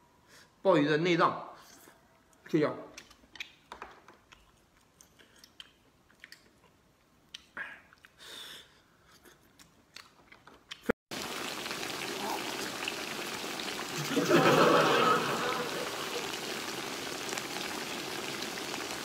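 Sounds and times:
person chewing: 3.0s - 8.2s, 9.0s - 10.9s
steady hiss: 11.2s - 19.0s.

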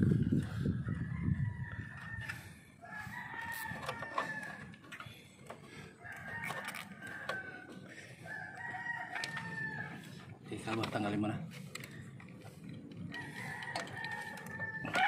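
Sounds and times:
rooster crowing: 0.7s - 4.8s, 6.0s - 10.2s, 13.1s - 15.0s.

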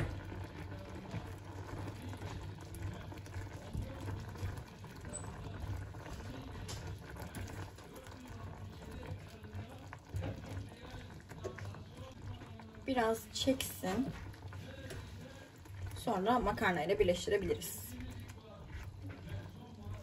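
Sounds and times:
sauce simmering in a frying pan: 0.0s - 20.0s
wooden spoon scraping a pan: 13.3s - 20.0s.

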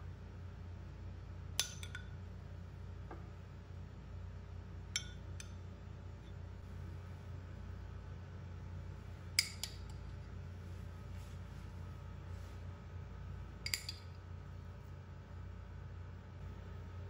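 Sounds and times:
low steady hum: 0.0s - 17.0s
metal spoon clinking dishes: 13.7s - 14.1s.

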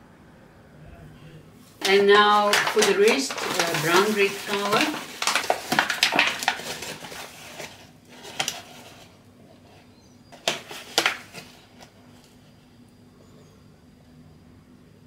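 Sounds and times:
paper bag rustling: 1.7s - 12.3s.

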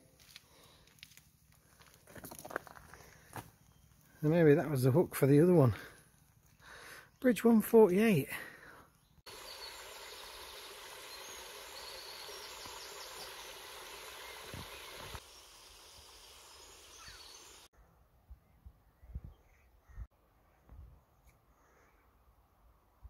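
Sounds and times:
faint bird chirps: 3.6s - 4.3s, 8.7s - 22.2s
outdoor hush: 5.6s - 7.3s, 8.2s - 18.6s
water rushing over a weir: 9.3s - 15.2s.

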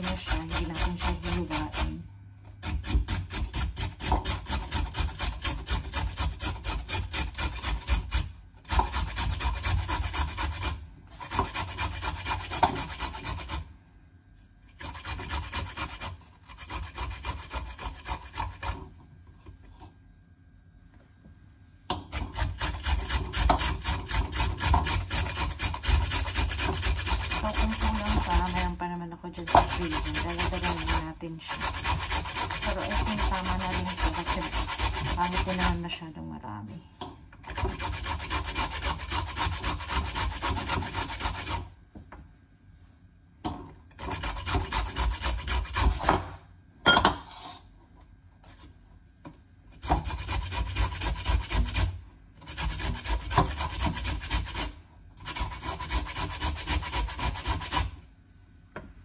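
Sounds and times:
carrot scraping on grater: 0.0s - 2.0s, 2.6s - 13.7s, 14.7s - 18.9s, 21.9s - 28.8s, 29.4s - 35.8s, 37.4s - 41.8s, 44.0s - 46.4s, 47.2s - 47.7s, 49.7s - 58.0s.

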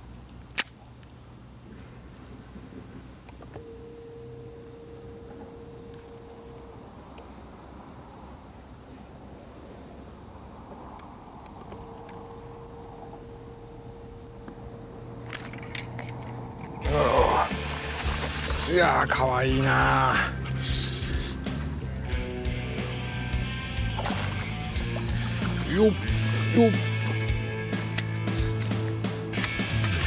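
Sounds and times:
faint steady hum: 0.0s - 29.3s
insects droning: 0.0s - 30.0s
sharp click: 0.5s - 0.8s.

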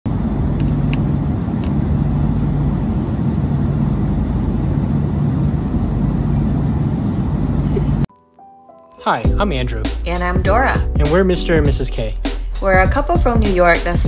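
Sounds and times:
airliner engine drone: 0.1s - 8.1s.

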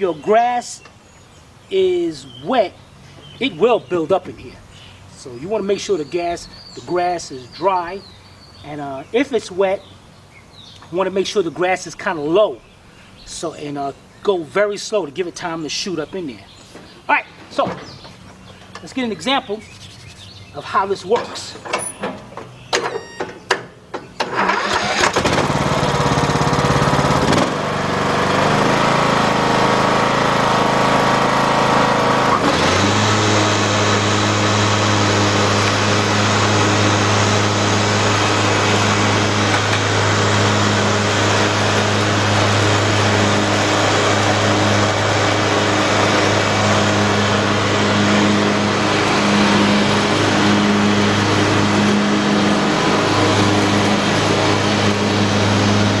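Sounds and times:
lawn tractor engine running: 17.3s - 56.0s.

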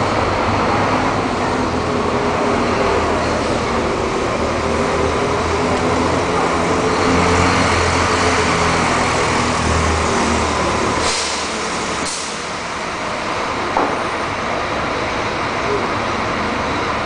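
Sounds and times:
pneumatic air hisses: 11.0s - 12.5s.

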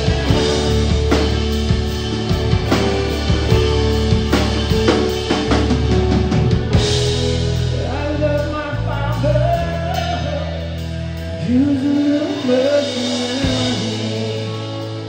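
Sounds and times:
electric guitar and bass chords: 0.0s - 15.0s
man singing: 7.7s - 15.0s.

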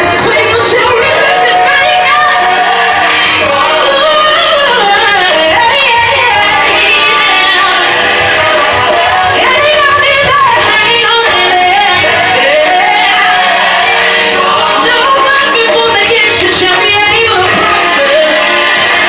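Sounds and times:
instrumental backing music: 0.0s - 19.0s
woman singing gospel: 0.0s - 19.0s.

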